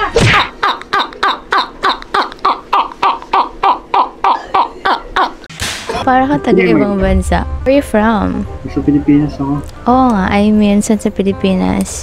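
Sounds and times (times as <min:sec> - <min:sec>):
man laughing: 0:00.5 - 0:05.5.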